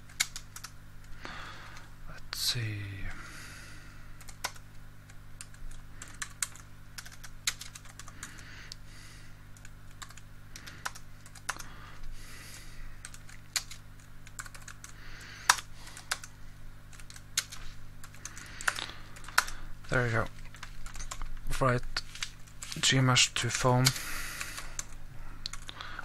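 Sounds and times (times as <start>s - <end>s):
computer keyboard typing: 0.1s - 0.7s, 4.2s - 8.4s, 9.6s - 11.7s, 13.0s - 16.3s, 16.9s - 21.3s, 22.1s - 25.8s.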